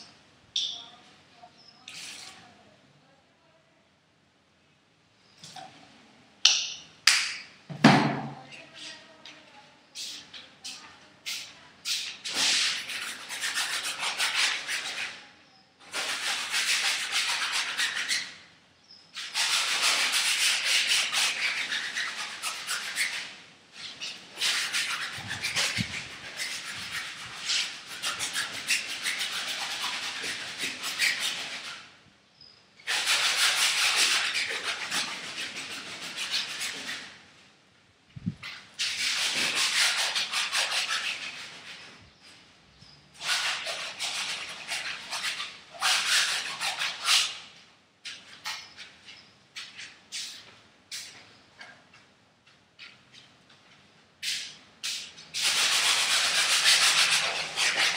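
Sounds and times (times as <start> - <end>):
paintbrush scrubbing on canvas: 10.0 - 18.4, 19.2 - 31.9, 32.8 - 37.2, 38.4 - 42.4, 43.2 - 47.6, 54.2 - 57.9.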